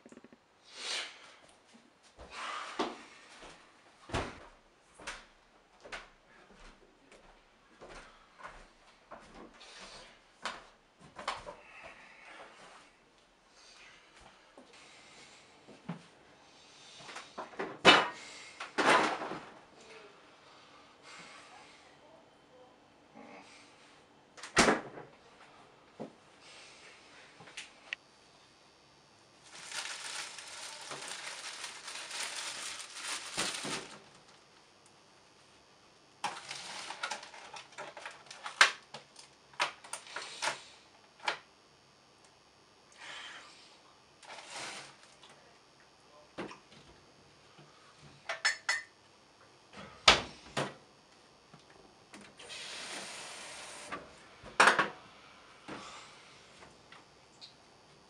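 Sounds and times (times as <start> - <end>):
bread bag crinkling: 29.4 - 34.4, 36.3 - 38.6
steady hiss: 52.4 - 54.1.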